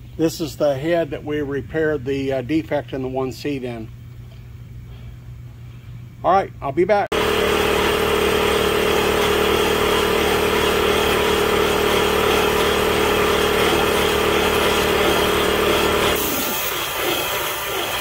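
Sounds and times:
cutter machining metal: 7.2s - 18.0s.

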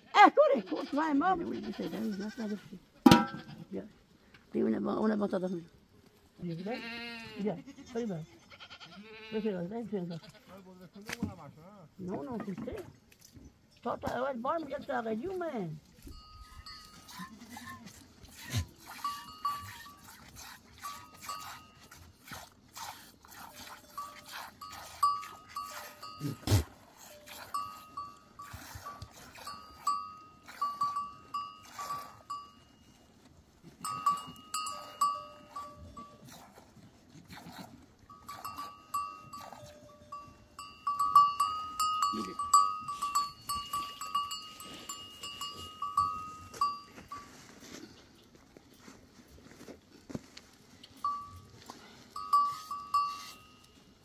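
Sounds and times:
goat bells clinking and ringing: 3.1s - 3.6s, 16.0s - 17.8s, 18.4s - 22.1s, 23.3s - 36.4s, 38.0s - 47.5s, 51.0s - 54.0s.

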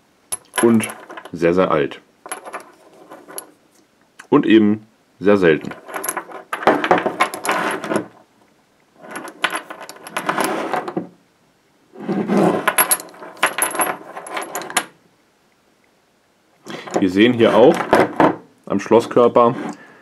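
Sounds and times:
iron chain clinking and rattling: 0.3s - 1.4s, 2.2s - 3.6s, 5.6s - 8.2s, 9.0s - 11.0s, 12.4s - 15.0s.

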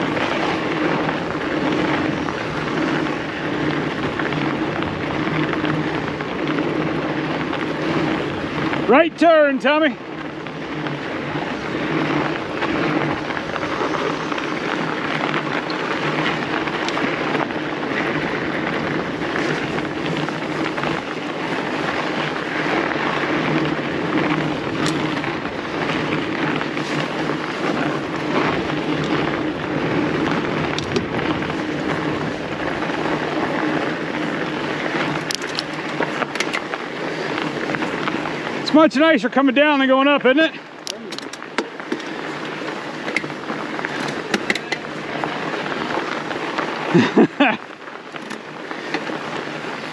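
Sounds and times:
bike tyres rolling on snow: 0.0s - 49.9s
wind on microphone: 10.7s - 36.5s.

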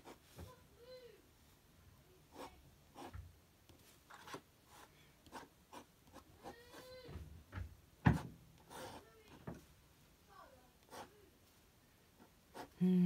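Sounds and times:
pen scratching on paper: 2.3s - 3.1s, 4.1s - 7.0s, 8.1s - 9.1s, 10.8s - 11.1s, 12.2s - 12.8s.

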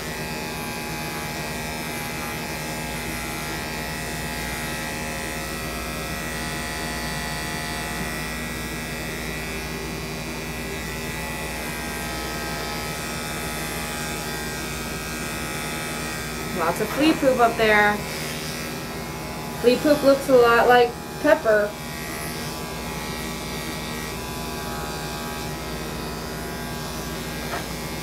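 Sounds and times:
electric clippers buzzing: 0.0s - 28.0s.

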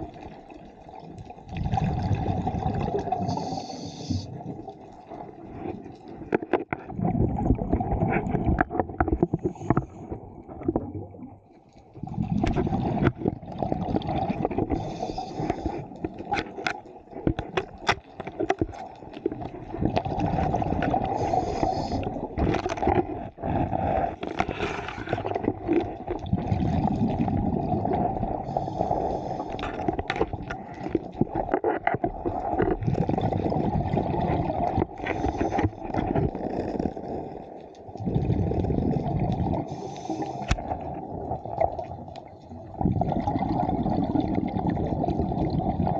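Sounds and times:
gurgling exhaled bubbles: 0.0s - 45.9s
regulator inhalation hiss: 3.3s - 4.3s, 14.8s - 15.8s, 21.2s - 22.1s, 39.7s - 40.5s.

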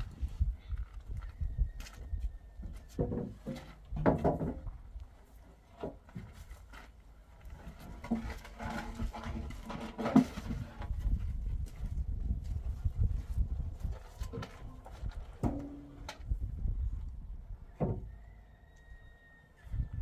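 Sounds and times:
wooden poles knocking on block wall: 3.0s - 4.8s.

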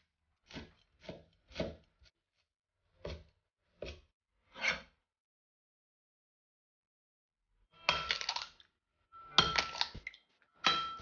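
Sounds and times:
cleaver chopping on cutting board: 0.5s - 1.9s.

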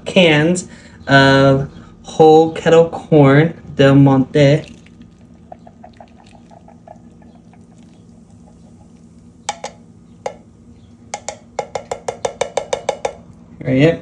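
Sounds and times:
low steady hum: 0.0s - 14.0s
tapping on steel cans: 9.5s - 10.4s, 11.1s - 13.2s.

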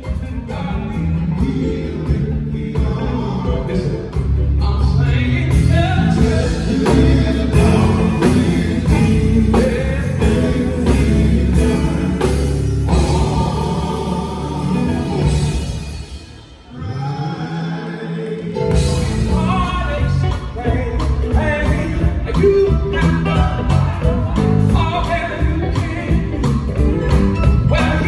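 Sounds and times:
male backing vocals: 0.0s - 26.8s
electric guitar: 0.0s - 28.0s
keyboard: 0.0s - 28.0s
man singing lead: 0.0s - 28.0s
drum beat: 5.4s - 16.4s, 18.6s - 28.0s.

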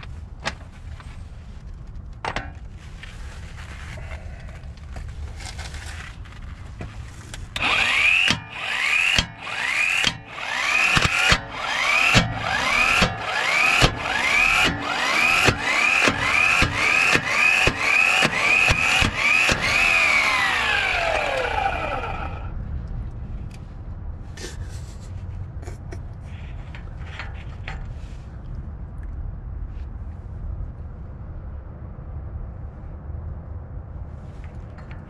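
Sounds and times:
low rumble: 0.0s - 35.0s
impact wrench hammering: 7.6s - 22.3s.

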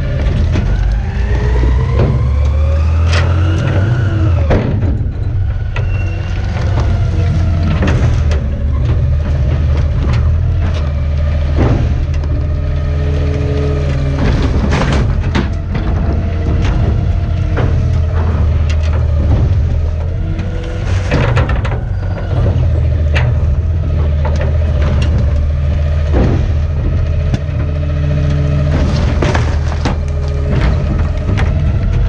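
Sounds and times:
garbage truck engine rumbling: 0.0s - 32.0s
metallic knocks and clanks: 0.0s - 32.0s.

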